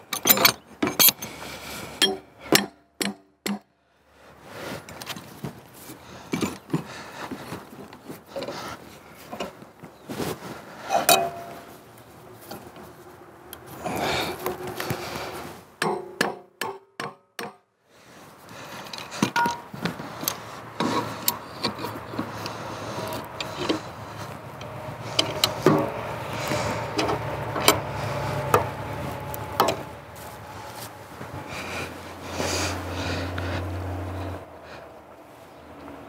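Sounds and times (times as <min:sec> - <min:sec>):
wood and metal knocking and scraping: 0:00.0 - 0:01.4, 0:06.3 - 0:09.6, 0:10.8 - 0:11.7, 0:15.8 - 0:17.6, 0:18.8 - 0:31.5.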